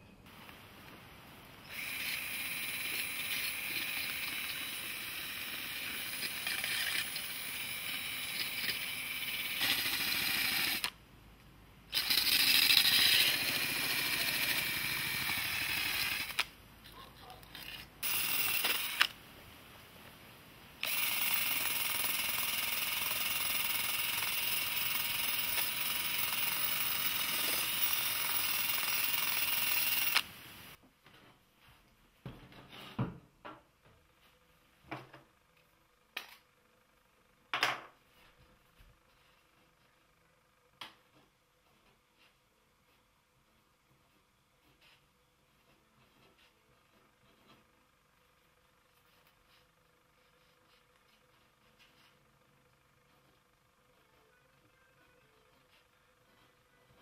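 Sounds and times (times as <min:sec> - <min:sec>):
rotary tool whining: 0:01.6 - 0:11.0, 0:11.9 - 0:16.5, 0:17.6 - 0:19.2, 0:20.8 - 0:30.3.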